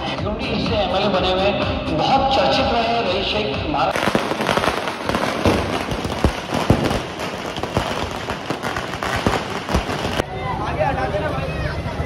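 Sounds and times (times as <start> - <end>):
firecrackers crackling and banging: 3.9 - 10.3.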